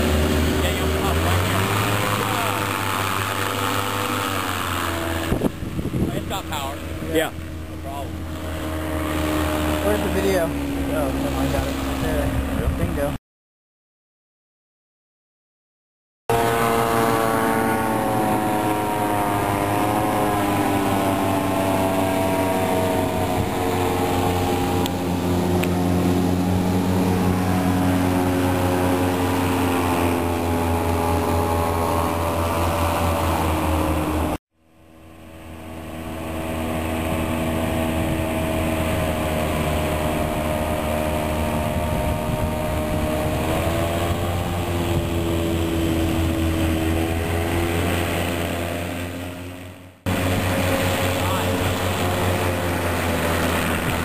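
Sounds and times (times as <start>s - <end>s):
hovercraft engines droning: 0.0s - 13.2s, 16.3s - 54.0s.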